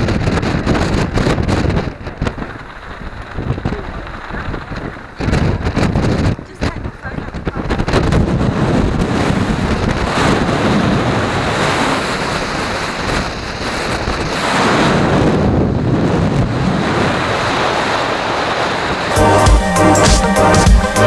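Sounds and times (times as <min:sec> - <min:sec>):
wind buffeting microphone: 0:00.0 - 0:19.2.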